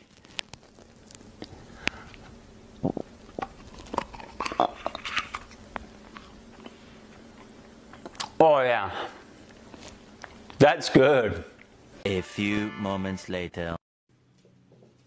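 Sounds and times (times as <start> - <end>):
person chewing crunchy food: 0.0 - 8.4
faint steady hum: 0.0 - 15.0.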